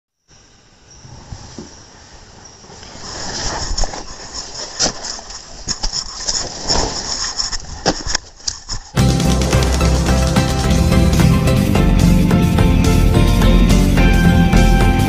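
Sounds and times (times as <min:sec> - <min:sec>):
person scrambling in a tent: 0:01.1 - 0:11.8.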